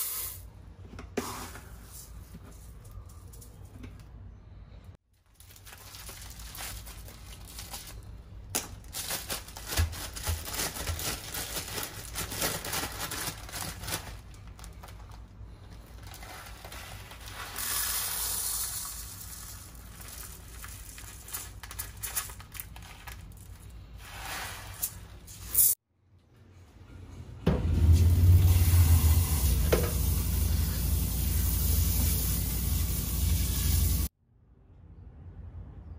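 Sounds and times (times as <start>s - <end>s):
steady hissing rush: 28.0s - 34.1s.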